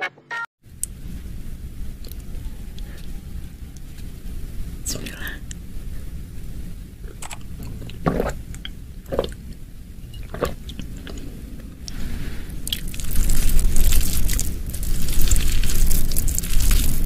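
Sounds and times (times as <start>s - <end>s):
person chewing with crackling: 2.0s - 4.1s, 7.0s - 17.0s.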